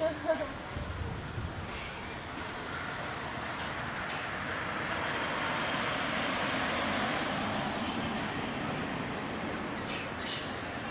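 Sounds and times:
car passing close by: 0:02.6 - 0:10.9.

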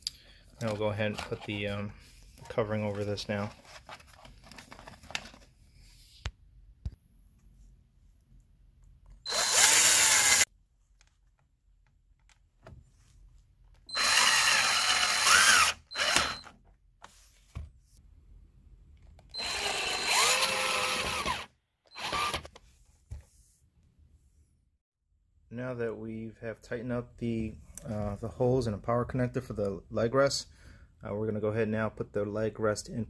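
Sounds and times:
power drill driving screws: 0:09.3 - 0:10.5, 0:13.9 - 0:16.5, 0:19.3 - 0:22.5.

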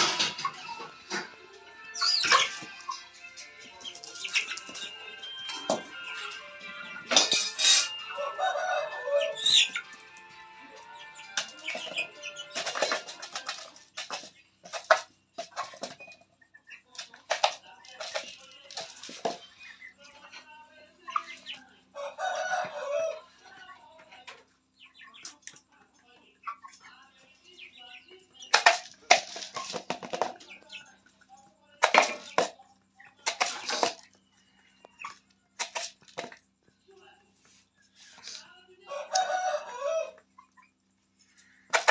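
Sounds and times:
background music: 0:00.0 - 0:14.2
faint chick chirp: 0:00.1 - 0:03.0, 0:03.7 - 0:13.0, 0:18.6 - 0:41.9.

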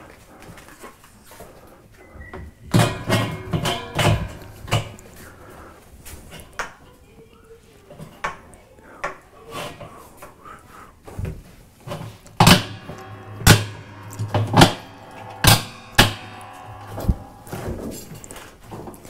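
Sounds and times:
steady low hum: 0:12.4 - 0:18.4.

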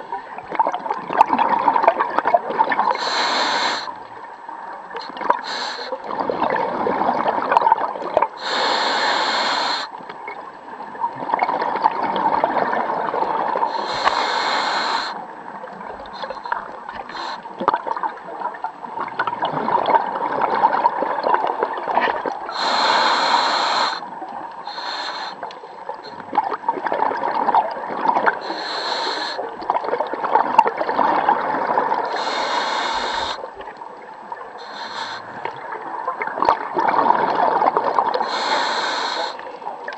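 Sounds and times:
exhaled bubbles rushing: 0:00.4 - 0:03.0, 0:06.1 - 0:08.3, 0:11.1 - 0:13.7, 0:17.6 - 0:22.6, 0:26.3 - 0:28.4, 0:29.5 - 0:32.1, 0:35.3 - 0:38.2
regulator inhalation hiss: 0:03.0 - 0:03.9, 0:05.4 - 0:06.0, 0:08.4 - 0:09.9, 0:13.7 - 0:15.2, 0:16.2 - 0:17.5, 0:22.5 - 0:25.5, 0:28.4 - 0:29.4, 0:32.1 - 0:33.5, 0:34.6 - 0:35.4, 0:38.2 - 0:39.4.

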